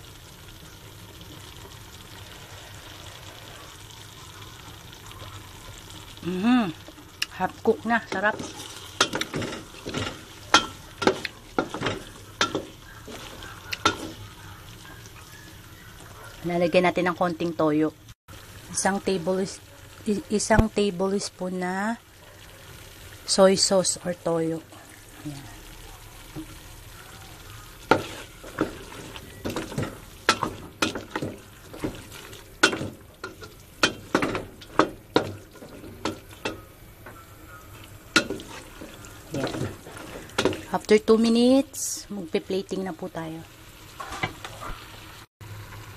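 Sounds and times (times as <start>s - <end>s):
soft sizzle: 0.0s - 45.9s
utensil scraping a pan: 8.1s - 14.2s, 27.8s - 36.6s.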